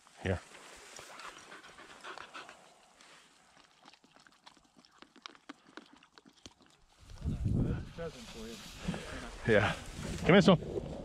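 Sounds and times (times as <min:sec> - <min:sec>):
dog panting: 0:01.0 - 0:03.0
dog lapping water: 0:03.4 - 0:07.0.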